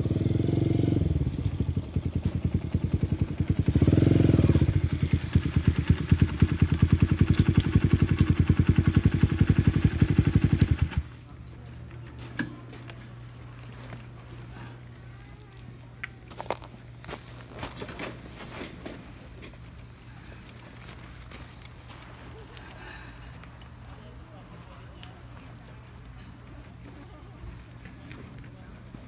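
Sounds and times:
motorcycle engine revving and idling: 0.0 - 11.1.

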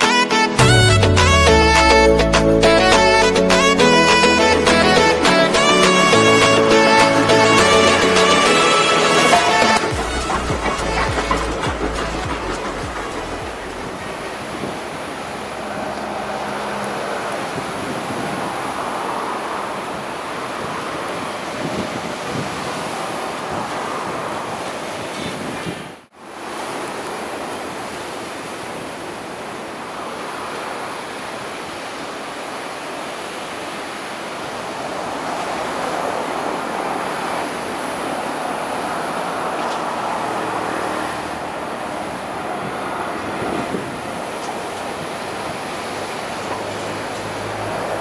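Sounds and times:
faint approaching diesel train: 5.6 - 25.0
wind noise on microphone: 9.8 - 15.8, 17.4 - 18.9, 20.0 - 26.0, 41.4 - 48.0.

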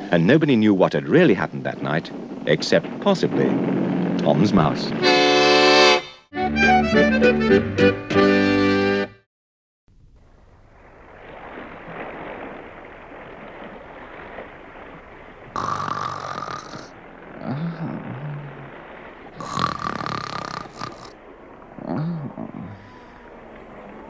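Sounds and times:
sea wash: 10.0 - 24.0.

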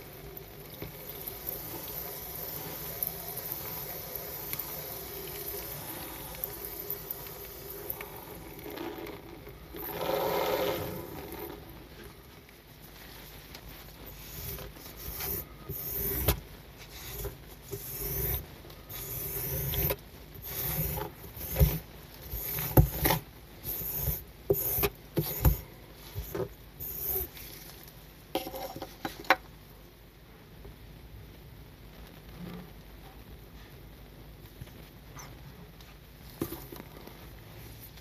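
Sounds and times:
squeegee scraping wet rug: 7.8 - 12.2, 14.0 - 27.7.

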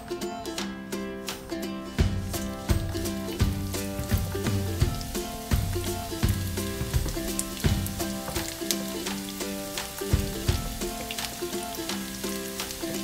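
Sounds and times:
background music with steady beat: 0.0 - 13.0
fish sizzling in hot oil: 3.4 - 13.0.

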